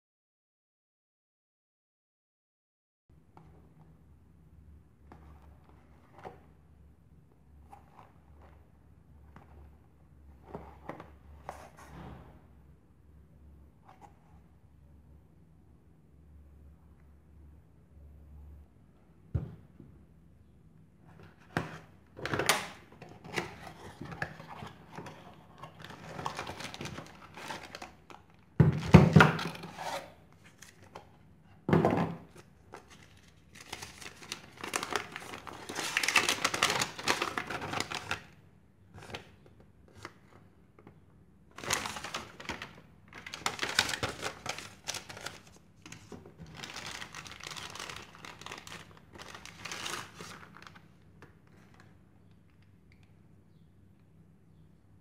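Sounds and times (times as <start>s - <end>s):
plastic and paper packaging crinkling: 21.2s - 28.3s, 32.2s - 38.4s, 41.5s - 50.9s
packaging knocks and clicks: 41.6s - 50.7s.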